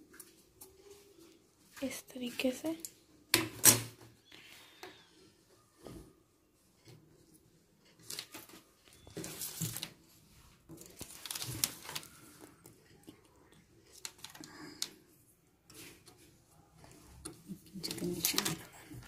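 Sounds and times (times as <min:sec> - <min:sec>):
stiff fabric rustling and crinkling: 0:07.9 - 0:12.6.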